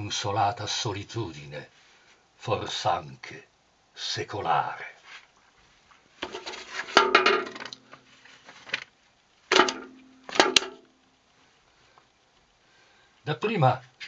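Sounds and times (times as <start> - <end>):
clattering knocks and clinks: 6.2 - 7.8, 9.5 - 10.9.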